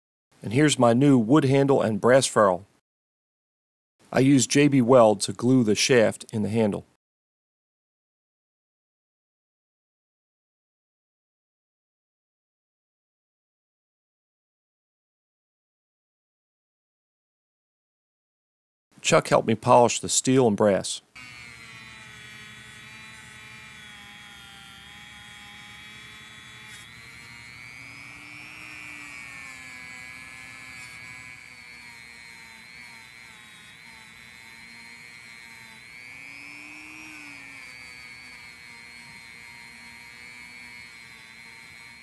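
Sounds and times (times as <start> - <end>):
rotary tool whining: 21.2 - 42.0.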